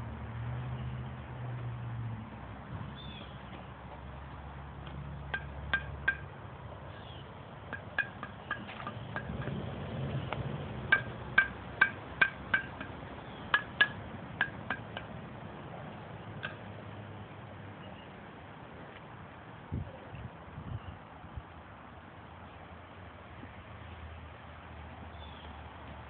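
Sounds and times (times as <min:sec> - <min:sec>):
sharp clinking taps: 0:05.3 - 0:06.3, 0:07.7 - 0:09.6, 0:10.9 - 0:15.1, 0:16.4 - 0:16.6.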